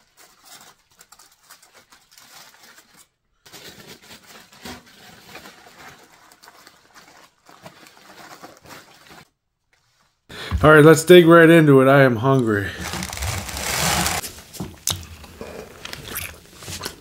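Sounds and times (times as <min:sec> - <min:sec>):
aluminium foil crinkling: 0:00.0 - 0:09.4, 0:12.7 - 0:14.4.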